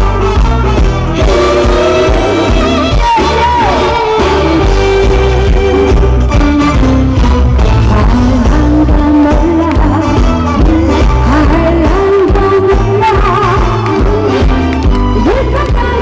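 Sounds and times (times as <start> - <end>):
recorded accompaniment with beat: 0.0 - 7.9
woman singing into microphone: 7.8 - 14.5, 15.2 - 16.0.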